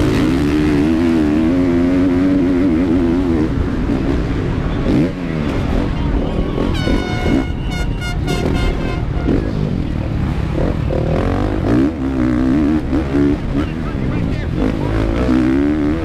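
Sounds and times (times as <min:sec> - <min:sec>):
motocross engine revving: 0:00.0 - 0:16.0
high horn-like tone: 0:06.6 - 0:09.5.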